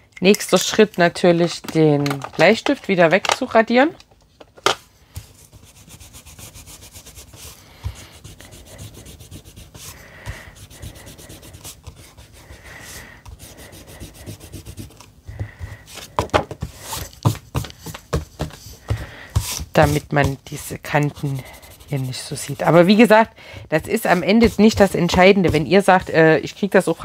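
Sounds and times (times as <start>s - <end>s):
eraser rubbing on cardstock: 5.4s - 15.0s, 19.3s - 23.1s.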